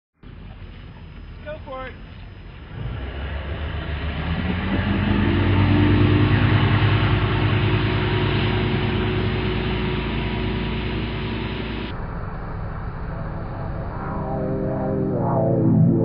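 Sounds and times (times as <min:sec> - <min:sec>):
boat engine running: 0:00.2 - 0:16.0.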